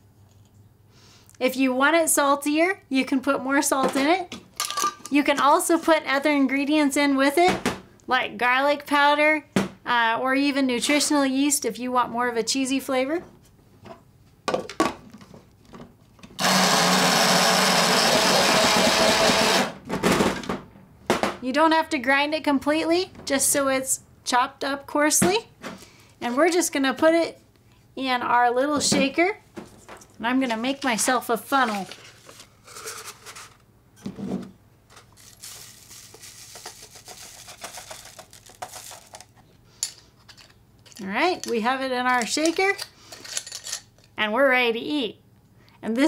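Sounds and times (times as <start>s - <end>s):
electric coffee grinder grinding: 16.4s - 19.8s
paper funnel rustle: 29.7s - 33.7s, 34.9s - 39.5s
salt pouring into glass jar: 35.2s - 38.4s.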